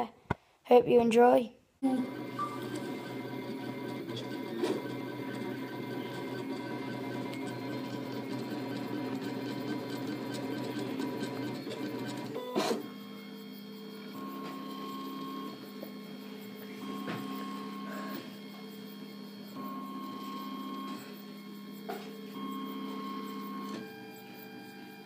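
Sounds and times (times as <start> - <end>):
stepper motors whining: 1.8 - 25.0.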